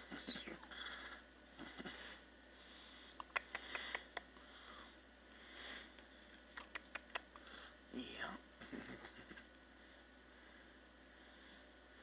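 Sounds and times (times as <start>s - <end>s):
faint sniffing and breathing: 0.0s - 6.3s, 9.7s - 12.0s.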